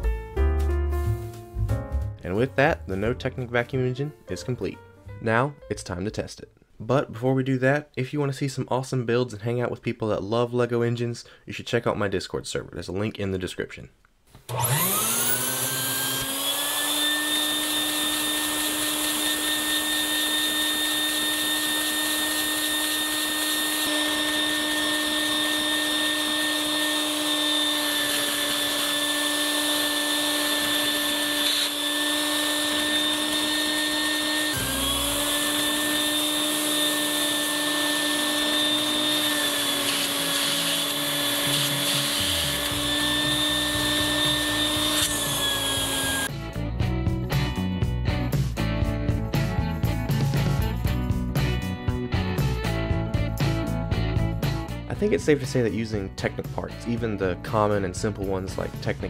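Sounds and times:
vacuum cleaner motor whine: 14.5 - 46.3.

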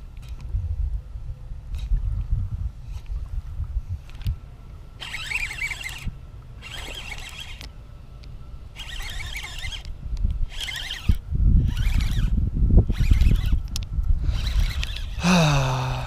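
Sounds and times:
wind rumble on microphone: 0.0 - 7.6, 8.4 - 16.0
fishing reel whirring: 5.0 - 7.7, 8.6 - 16.0.

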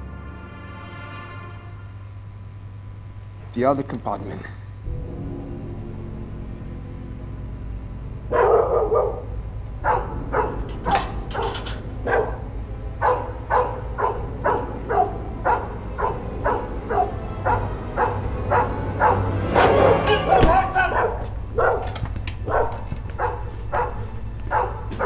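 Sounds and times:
low steady drone: 0.0 - 3.6, 4.4 - 25.0
dog barking: 8.3 - 25.0.

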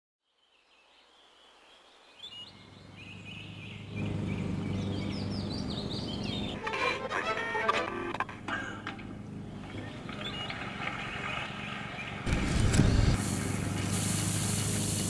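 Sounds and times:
birds chirping: 0.2 - 7.0, 8.1 - 15.0.

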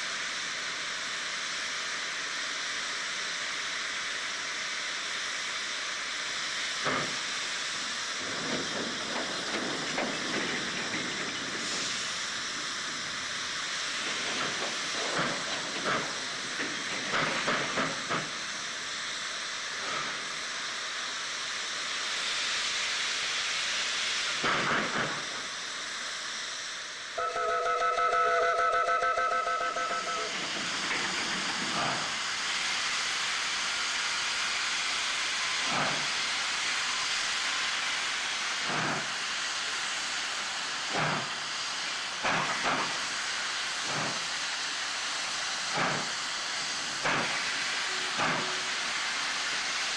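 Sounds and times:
loud steam puffs: 0.0 - 27.5, 28.2 - 49.9
steam locomotive hissing: 0.0 - 49.9
steam whistle blast: 27.2 - 30.5, 47.8 - 48.8.

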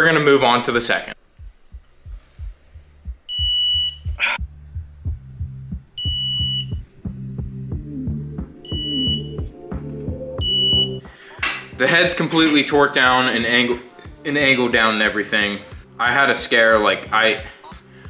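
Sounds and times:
low regular beat: 1.2 - 14.8, 15.6 - 16.0
short high beeps: 3.3 - 4.1, 6.0 - 6.8, 10.4 - 11.0.

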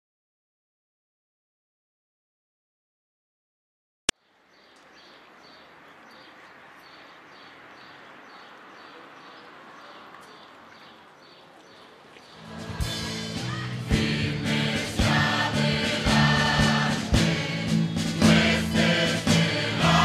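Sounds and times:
background noise: 4.1 - 20.0
choral music: 12.4 - 20.0.

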